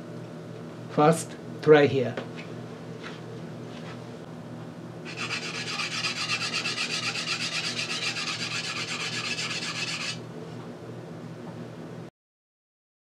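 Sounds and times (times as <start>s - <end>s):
knife grinding on whetstone: 5.1s - 10.2s.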